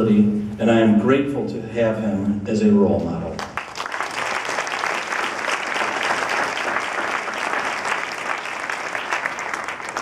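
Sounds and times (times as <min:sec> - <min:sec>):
audience applauding: 0:03.4 - 0:10.0.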